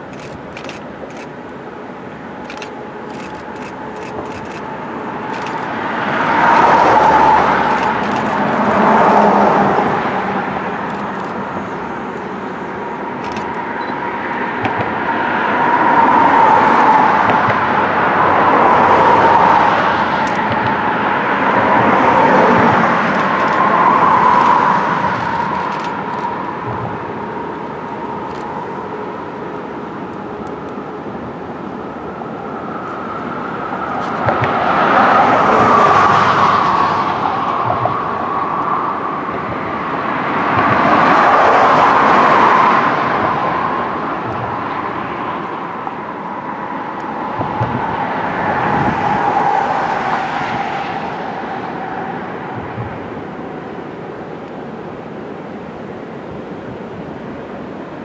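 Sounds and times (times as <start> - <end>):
traffic hum: 0.0 - 58.0
vehicles passing: 0.0 - 58.0.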